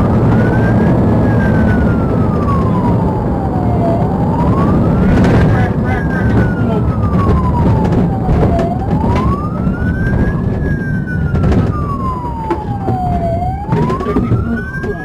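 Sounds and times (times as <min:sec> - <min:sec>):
engine and road rumble: 0:00.0 - 0:15.0
police siren wailing: 0:00.0 - 0:15.0
sharp knocks: 0:07.1 - 0:15.0.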